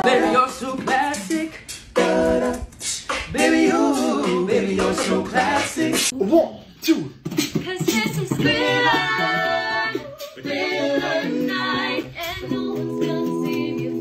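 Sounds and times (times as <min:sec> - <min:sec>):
woman singing a cappella: 0:07.6 - 0:14.0.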